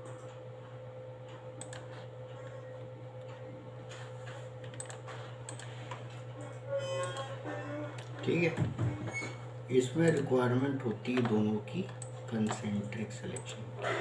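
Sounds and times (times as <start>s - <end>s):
steady low hum: 0.0s - 14.0s
keyboard and mouse clicks: 1.6s - 1.9s, 4.6s - 5.7s, 10.0s - 10.3s.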